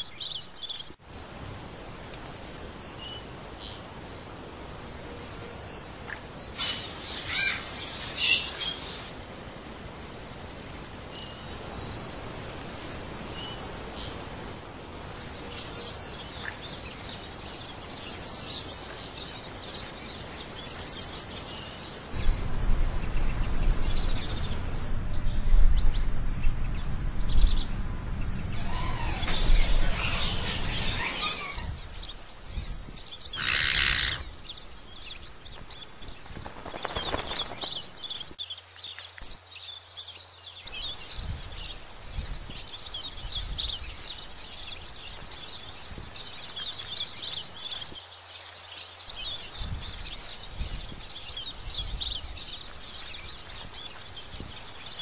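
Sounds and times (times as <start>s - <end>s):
high pulsed bird call: 22.1s - 24.9s
short whistled bird notes: 22.1s - 24.9s.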